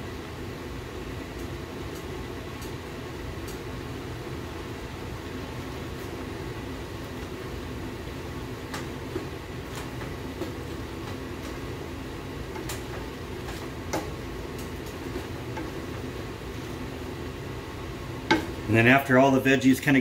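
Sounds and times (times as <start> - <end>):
steady low hum: 0.0 - 20.0
spoon knocking against pot: 18.3 - 18.6.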